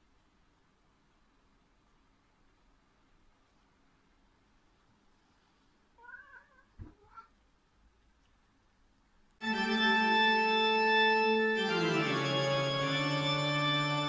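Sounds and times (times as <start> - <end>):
cat meowing: 6.0 - 7.4
music with long held chords: 9.4 - 14.0.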